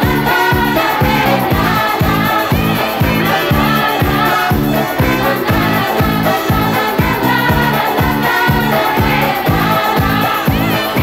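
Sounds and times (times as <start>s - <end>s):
backing voices: 0.0s - 11.0s
driving dance beat: 0.0s - 11.0s
woman singing lead: 0.0s - 11.0s.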